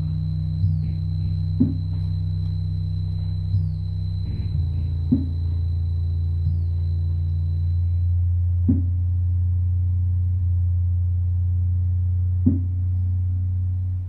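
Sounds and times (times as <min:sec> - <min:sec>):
faint high steady tone: 0:00.0 - 0:08.7
low electronic synthesizer drone: 0:00.0 - 0:14.0.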